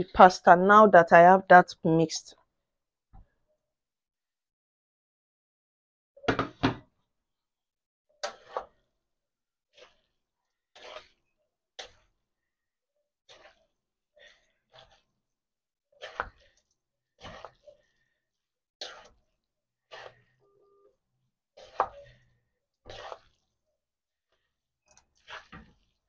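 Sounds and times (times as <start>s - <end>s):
wooden spoon scraping metal pan: 8.2s - 8.8s, 9.7s - 12.1s, 13.2s - 15.2s, 15.9s - 20.4s, 21.5s - 23.6s, 24.4s - 26.0s.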